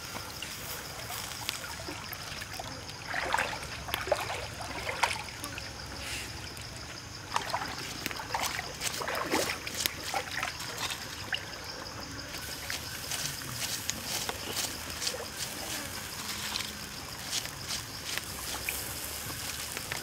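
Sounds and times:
stream trickling and gurgling: 0.0s - 20.0s
small plops and splashes: 1.0s - 6.0s, 6.6s - 16.6s.

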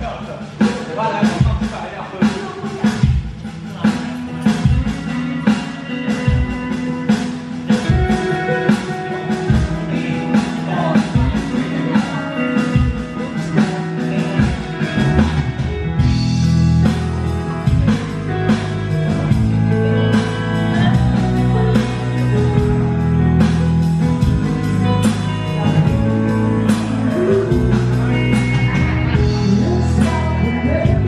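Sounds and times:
live band playing: 0.0s - 31.0s.

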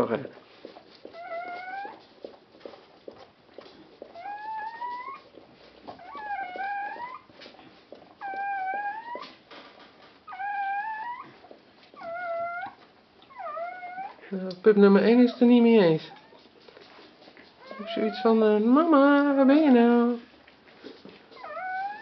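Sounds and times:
puppy crying: 1.1s - 2.0s, 4.1s - 7.4s, 8.1s - 9.4s, 10.2s - 14.3s, 15.1s - 16.5s, 17.6s - 18.4s, 21.3s - 22.0s.

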